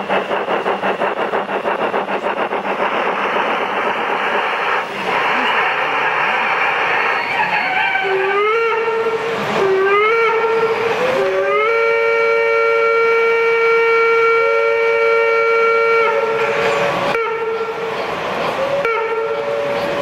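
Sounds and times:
steam locomotive whistle: 6.2s - 17.9s, 18.5s - 20.0s.

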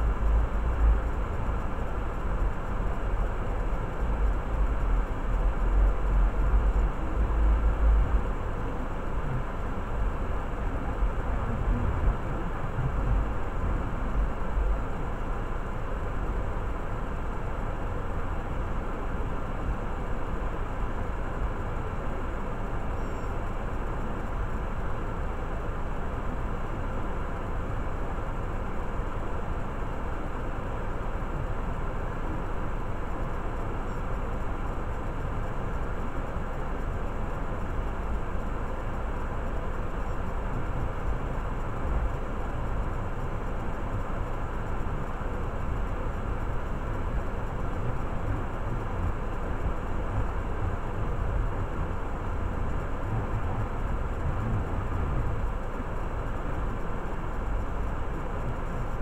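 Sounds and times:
car engine idling: 34.4s - 59.0s.

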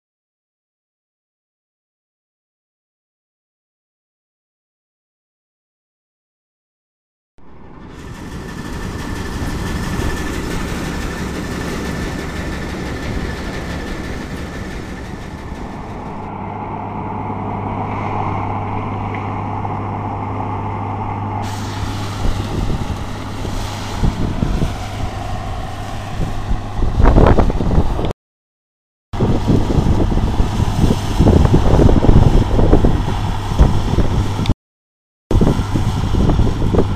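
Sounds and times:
combine harvester engine drone: 7.4s - 28.1s, 29.2s - 34.5s, 35.3s - 36.9s.

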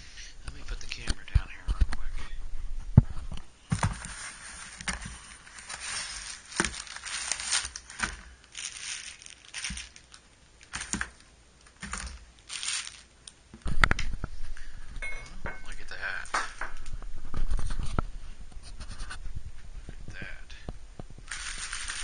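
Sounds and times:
packing paper crinkling: 3.7s - 13.4s, 21.2s - 22.0s.

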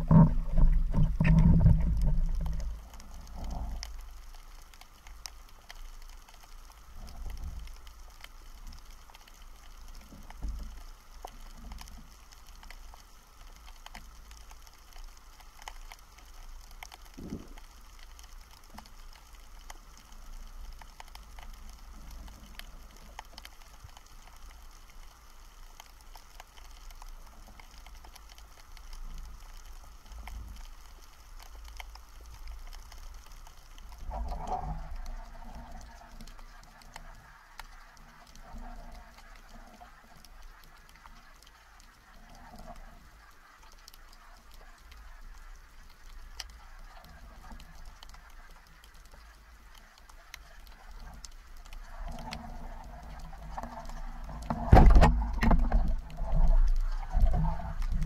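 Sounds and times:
low underwater rumble: 0.0s - 4.6s, 50.7s - 58.0s
underwater crackle of tiny clicks: 0.0s - 58.0s.

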